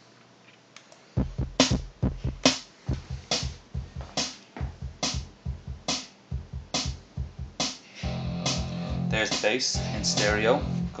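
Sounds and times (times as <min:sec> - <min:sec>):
drum machine beat: 0:01.2 - 0:11.0
bass line: 0:08.0 - 0:11.0.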